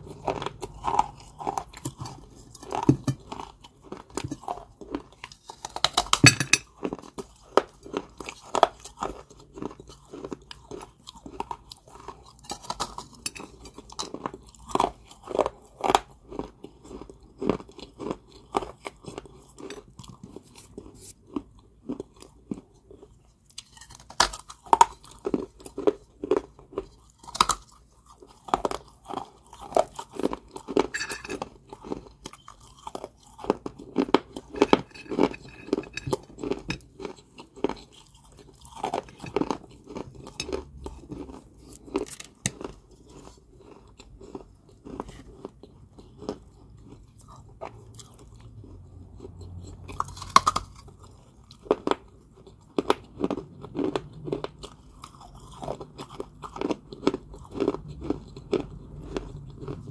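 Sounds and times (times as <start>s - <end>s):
person chewing crunchy clay: 0.0s - 59.9s.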